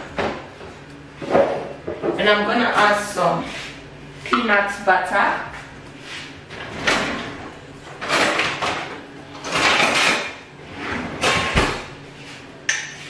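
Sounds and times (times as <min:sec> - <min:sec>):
kitchen drawer pulled open: 0:09.4 - 0:11.9
rattling and scraping in drawer: 0:09.4 - 0:11.9.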